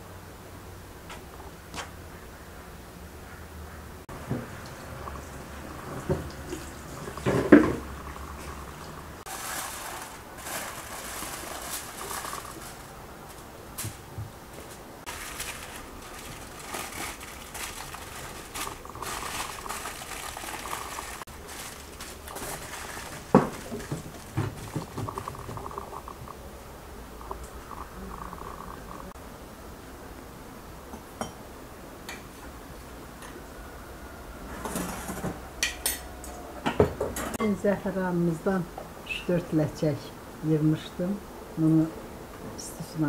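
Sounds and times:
aluminium foil crinkling: 9.3s - 25.8s.

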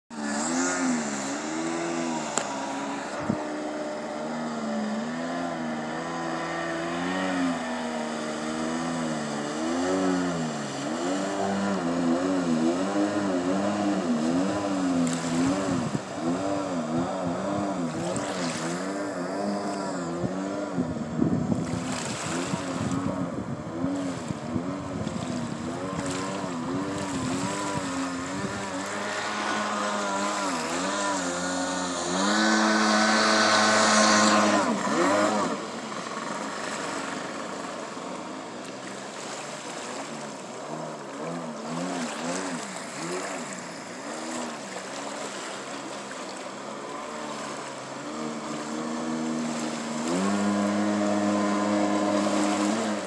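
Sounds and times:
jet ski engine revving: 0.1s - 53.0s.

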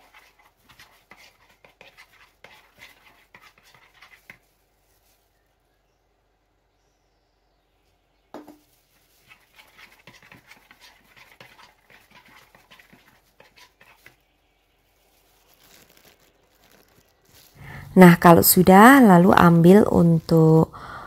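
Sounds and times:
metal spoon stirring batter: 0.0s - 5.2s, 8.4s - 17.2s
spoon knocking bowl: 8.4s - 8.6s
spoon scraping and tapping: 8.4s - 8.6s, 9.3s - 14.2s.

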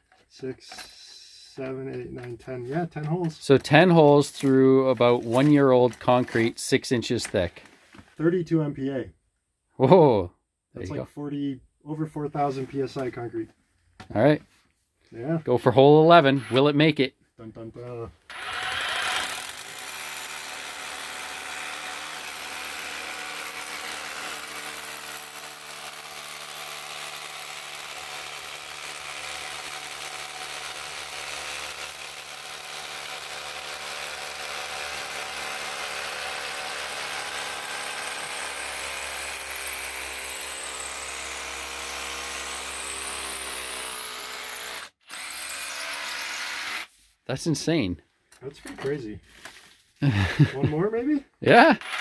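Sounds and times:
rotary hammer drilling concrete: 16.1s - 16.8s, 18.3s - 46.9s, 51.5s - 52.0s.

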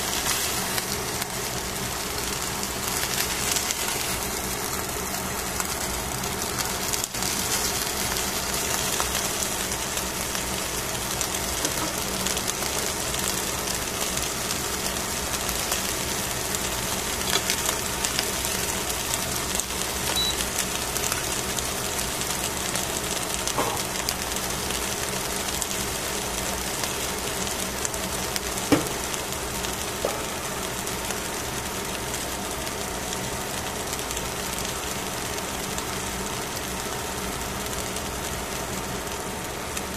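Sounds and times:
fish sizzling on grill: 0.0s - 39.9s.

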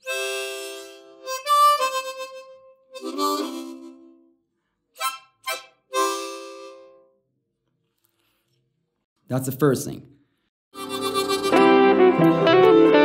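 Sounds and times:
harmonica notes and chords: 0.0s - 7.2s, 10.7s - 13.0s.

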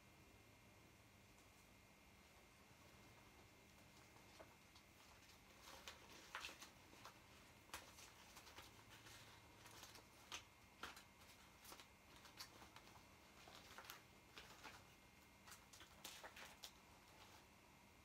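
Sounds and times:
vinyl toy crinkling: 3.2s - 17.5s.

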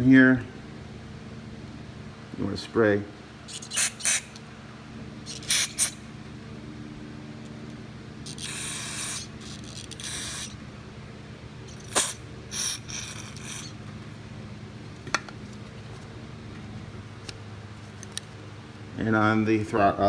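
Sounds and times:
steady low hum: 0.0s - 20.0s
aerosol spray hissing bursts: 3.5s - 4.3s, 5.3s - 6.0s, 8.3s - 10.5s.

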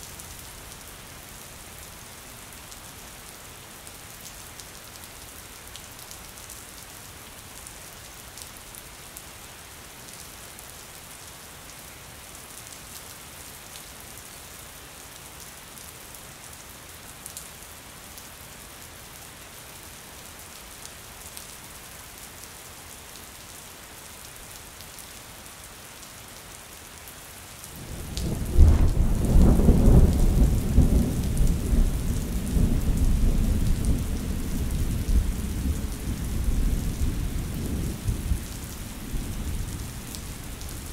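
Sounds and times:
rain on a window pane: 0.0s - 40.9s
thunder clap and rumble: 27.8s - 40.9s.

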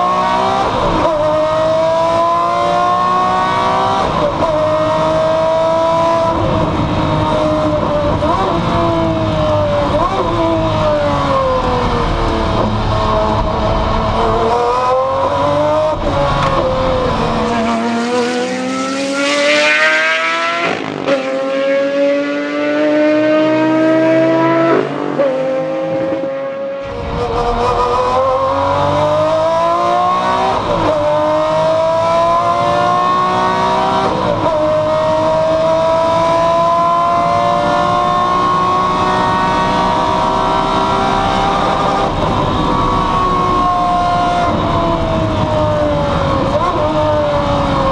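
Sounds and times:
race car engine upshifting: 0.0s - 47.9s.

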